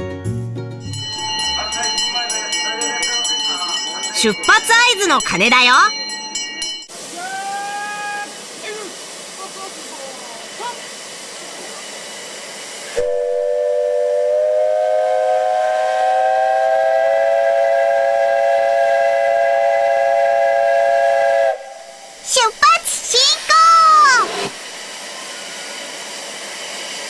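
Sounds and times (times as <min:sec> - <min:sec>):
steam hissing: 0:06.9 - 0:27.0
steam whistle blast: 0:12.9 - 0:22.2.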